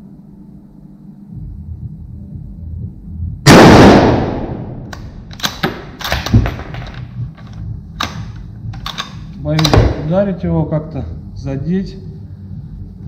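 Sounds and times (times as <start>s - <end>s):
rifle shot echoing: 3.5s - 6.6s
rifle bolt metal clicks: 4.9s - 9.8s.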